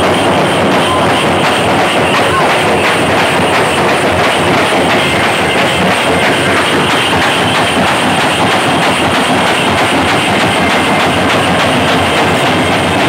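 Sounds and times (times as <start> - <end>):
group beating large drums: 0.0 - 13.0.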